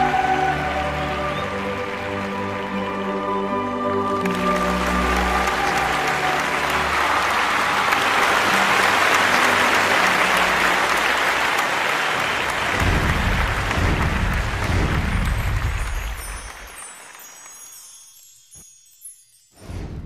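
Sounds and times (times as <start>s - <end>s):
audience applauding: 0.0s - 18.2s
low rumble: 12.7s - 16.4s.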